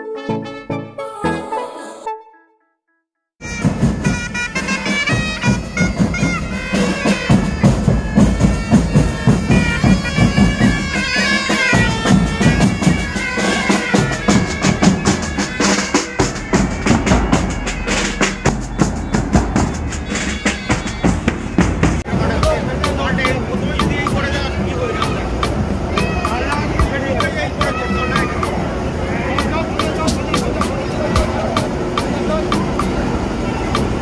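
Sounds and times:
bagpipes playing melody: 3.4s - 22.1s
drums beating: 3.4s - 34.0s.

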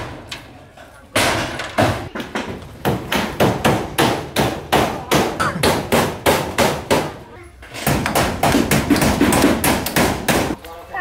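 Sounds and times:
hammer nailing metal roofing: 1.1s - 10.6s.

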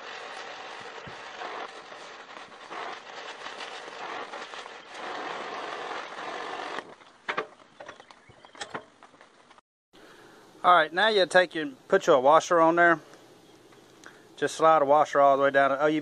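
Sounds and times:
torch flame hissing: 0.0s - 5.1s.

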